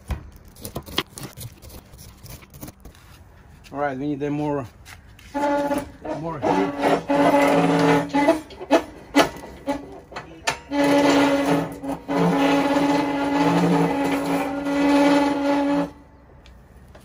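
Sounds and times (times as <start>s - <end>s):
hand-cranked winch whirring: 5.3s - 16.0s.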